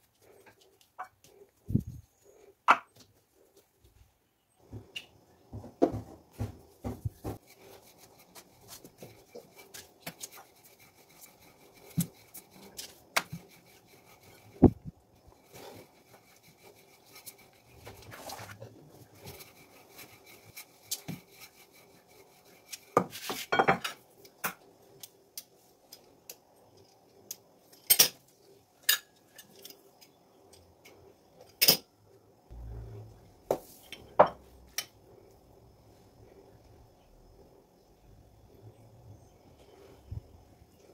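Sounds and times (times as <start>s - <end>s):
rolling pin rolling dough: 4.6s - 25.0s
rubbing on board: 6.8s - 23.5s.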